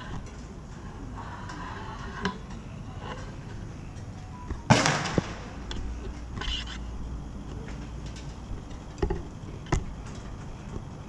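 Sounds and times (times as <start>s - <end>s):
faint music: 0.0s - 11.0s
firecracker bang: 4.7s - 5.7s
sharp crack: 4.7s - 6.6s.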